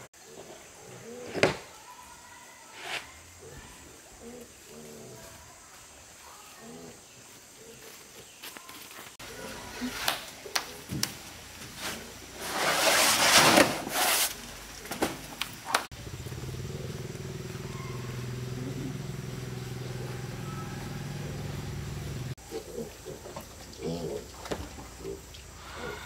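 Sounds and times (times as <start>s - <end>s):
roofing sheet scraping: 2.7s - 3.2s, 11.7s - 15.3s
low motor hum: 15.9s - 22.4s.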